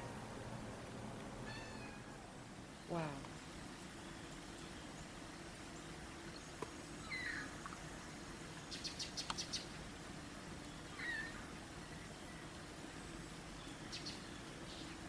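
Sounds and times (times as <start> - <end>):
cat meowing faintly: 1.4 - 2.2.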